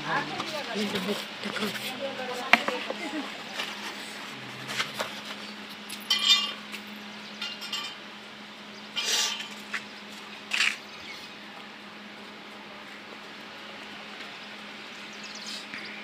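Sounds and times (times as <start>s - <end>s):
metal tongs clinking on concrete: 5.9s - 6.6s.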